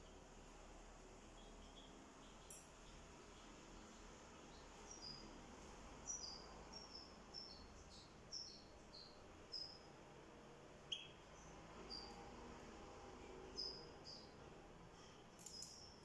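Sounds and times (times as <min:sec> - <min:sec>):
bird chirping: 0:01.2 - 0:10.0, 0:10.8 - 0:12.5, 0:13.2 - 0:14.5, 0:15.4 - 0:16.0
sharp click: 0:15.4 - 0:15.9.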